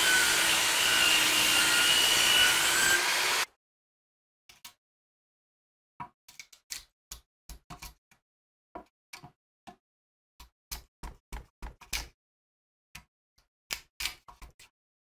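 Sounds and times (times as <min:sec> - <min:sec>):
chisel cutting into wood: 0:00.0 - 0:03.4.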